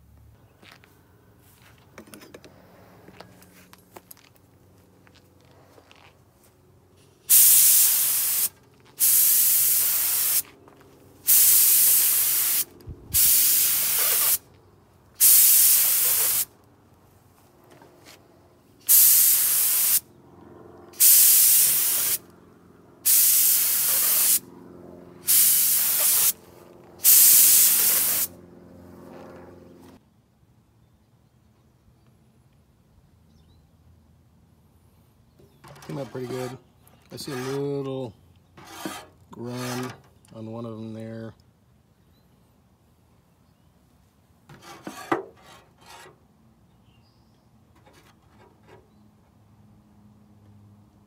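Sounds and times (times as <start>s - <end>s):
paint spray gun hissing: 7.3s - 10.5s, 11.3s - 14.4s, 15.2s - 16.5s, 18.9s - 20.0s, 21.0s - 22.2s, 23.1s - 24.4s, 25.3s - 26.4s, 27.0s - 28.3s.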